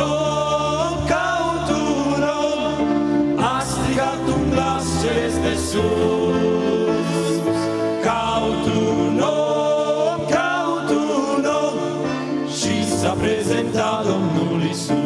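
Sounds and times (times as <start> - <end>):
keyboard accompaniment: 0.0 - 15.0
male group singing in harmony: 0.0 - 15.0
piano accordion: 0.0 - 15.0.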